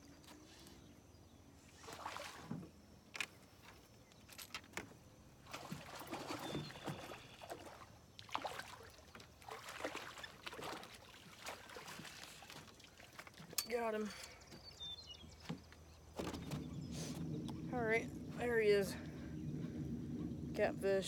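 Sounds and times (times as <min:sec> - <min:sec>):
water splashing: 0:01.7 - 0:03.2, 0:05.4 - 0:14.2.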